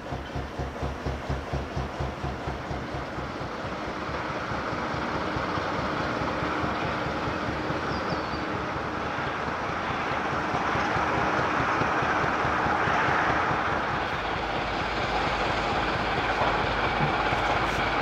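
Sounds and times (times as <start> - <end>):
steady rushing noise: 8.5 - 18.0
diesel engine thudding: 13.3 - 18.0.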